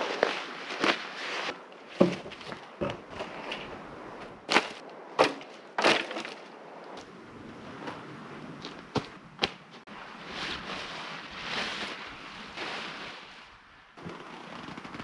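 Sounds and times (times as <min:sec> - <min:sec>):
tent fabric rustling: 0:00.0 - 0:03.8, 0:09.8 - 0:15.0.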